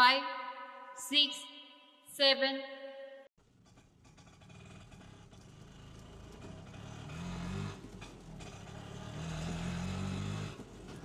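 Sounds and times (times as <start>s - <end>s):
auto-rickshaw engine revving: 3.4s - 11.0s.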